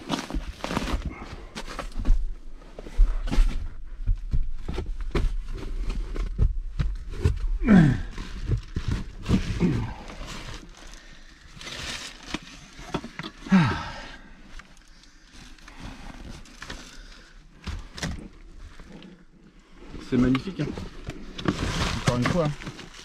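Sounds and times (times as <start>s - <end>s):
man grunting with effort: 7.6s - 8.2s, 9.5s - 10.2s, 13.5s - 14.2s.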